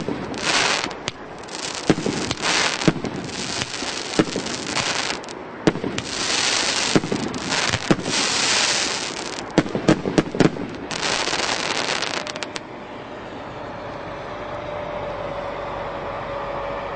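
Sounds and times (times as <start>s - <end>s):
firework launch and burst bangs: 0.0s - 12.4s
crackling firework stars: 0.0s - 12.6s.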